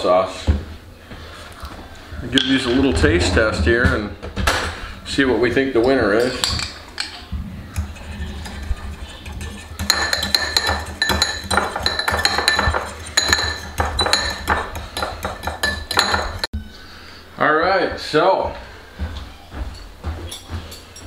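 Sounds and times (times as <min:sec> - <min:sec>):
fork clinking against ceramic bowl: 0:07.8 - 0:16.5.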